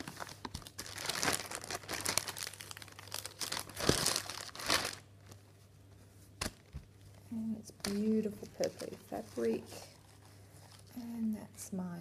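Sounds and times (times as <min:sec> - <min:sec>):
plastic packaging crinkling: 0:00.0 - 0:05.6, 0:07.8 - 0:11.0.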